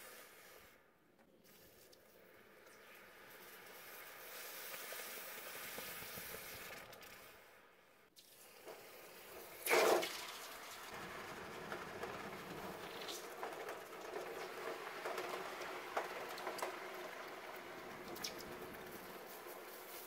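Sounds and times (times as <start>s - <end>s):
hot metal hissing in water: 0.0s - 0.8s, 2.7s - 7.5s, 8.2s - 10.7s, 17.6s - 20.0s
water sizzling and bubbling: 1.4s - 7.5s, 8.2s - 11.5s, 16.3s - 20.0s
small crackles: 10.4s - 20.0s.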